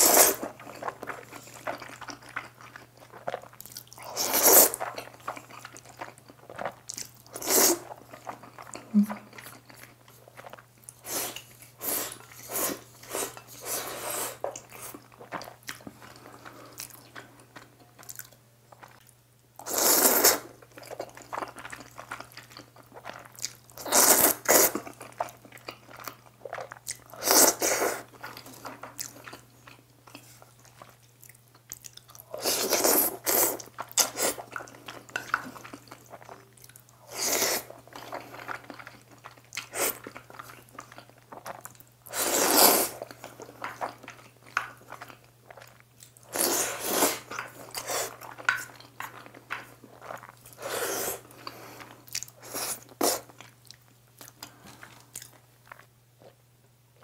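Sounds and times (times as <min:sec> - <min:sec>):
loud noodle slurps: 0:00.0 - 0:00.4, 0:04.0 - 0:04.8, 0:07.4 - 0:07.9, 0:11.1 - 0:14.4, 0:19.6 - 0:20.5, 0:23.8 - 0:24.8, 0:27.2 - 0:28.1, 0:32.4 - 0:34.4, 0:37.1 - 0:37.7, 0:42.1 - 0:43.0, 0:46.3 - 0:48.2, 0:50.6 - 0:51.3.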